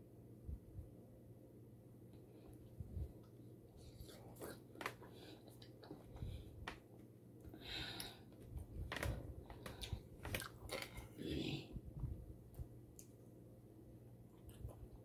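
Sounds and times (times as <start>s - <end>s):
person chewing: 9.5s - 11.2s.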